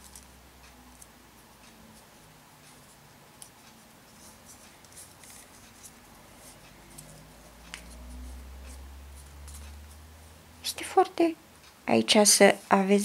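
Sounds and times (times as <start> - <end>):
paper tubes rustling and scraping: 2.0 - 10.0.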